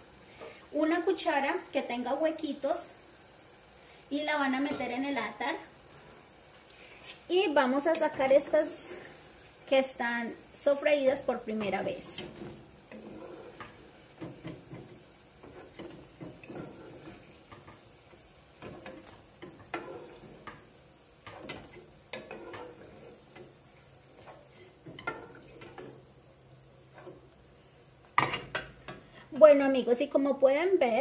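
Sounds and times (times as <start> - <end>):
wooden spoon knocking in pot: 13.6 - 17.8.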